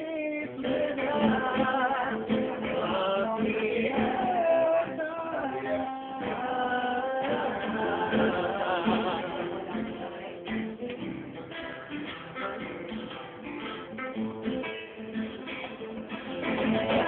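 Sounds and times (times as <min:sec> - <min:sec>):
men singing together: 0:00.0 - 0:10.8.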